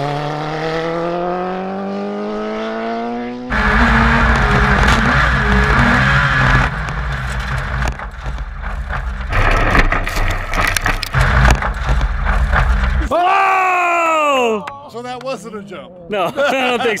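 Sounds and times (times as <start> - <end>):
gravel hitting the chassis: 4.2 - 13.1.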